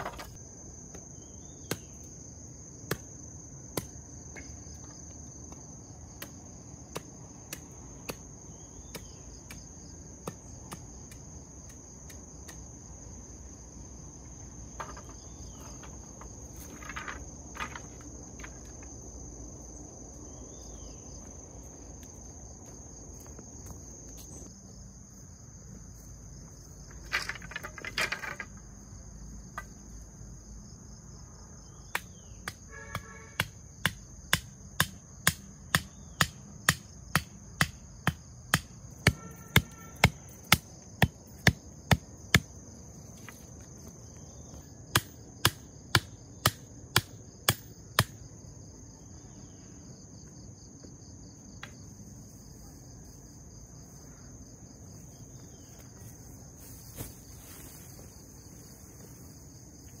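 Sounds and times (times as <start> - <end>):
wood clattering: 0.0 - 0.3, 14.8 - 19.0, 26.9 - 28.7
insects chirring: 0.0 - 60.0
knocks on bamboo: 14.8 - 15.2, 31.9 - 42.5.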